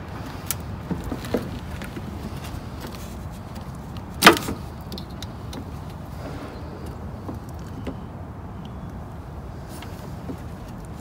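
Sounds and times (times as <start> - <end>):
steady low rumble: 4.7 - 9.7.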